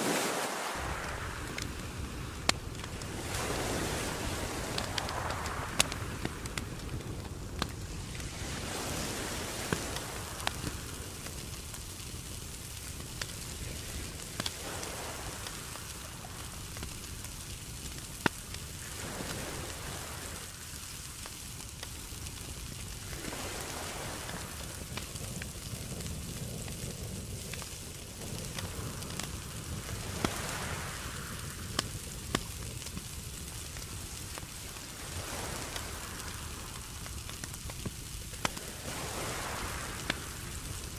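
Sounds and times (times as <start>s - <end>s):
coals crackling and popping: 0.6s - 40.9s.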